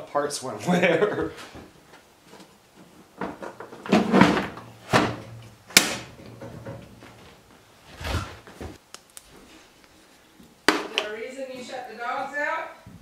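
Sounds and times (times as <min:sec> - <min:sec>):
parts clunking and rattling: 0:01.2 - 0:07.5.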